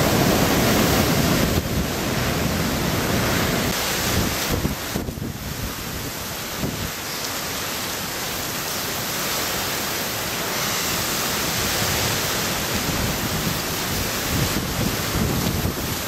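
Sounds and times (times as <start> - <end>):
gusty wind buffeting: 0.0 - 7.0, 10.4 - 16.0
driving rain hiss: 0.0 - 16.0.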